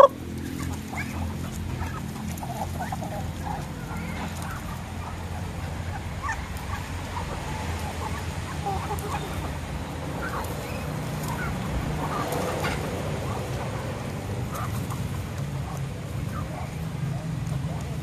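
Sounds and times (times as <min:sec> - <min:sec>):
beaks pecking at gravel: 0:00.0 - 0:18.0
chickens and ducks clucking: 0:00.0 - 0:18.0.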